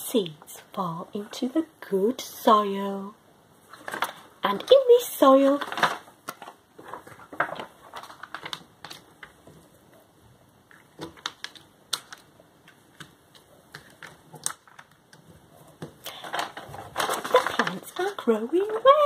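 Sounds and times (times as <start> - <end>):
paper rustling and crinkling: 3.7 - 9.8, 13.4 - 19.0.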